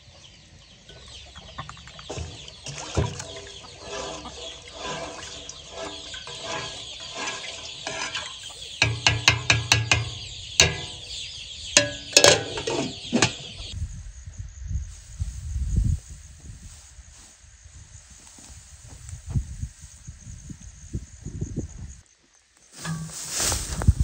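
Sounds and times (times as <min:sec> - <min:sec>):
chickens clucking: 0:00.9 - 0:13.8
wooden spatula striking a pot: 0:02.1 - 0:11.1, 0:11.8 - 0:13.6.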